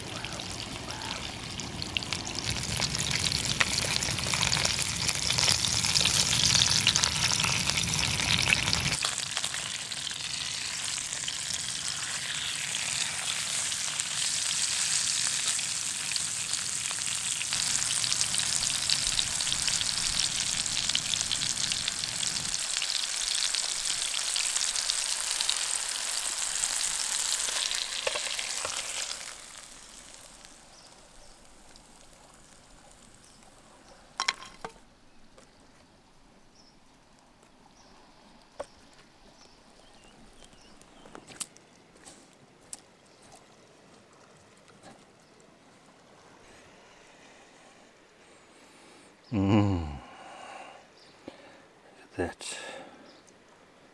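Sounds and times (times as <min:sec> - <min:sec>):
fish frying in oil: 0:00.2 - 0:33.5.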